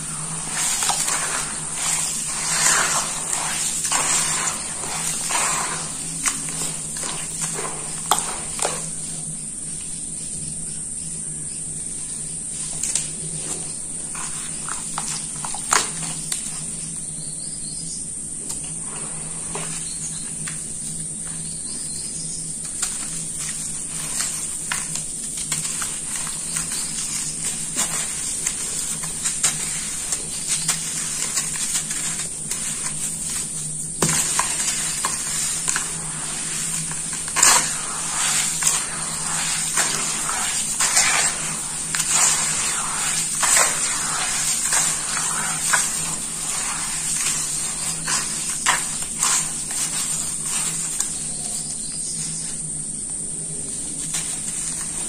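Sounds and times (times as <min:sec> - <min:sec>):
wet mud squelching: 0:00.0 - 0:08.8, 0:23.5 - 0:51.2.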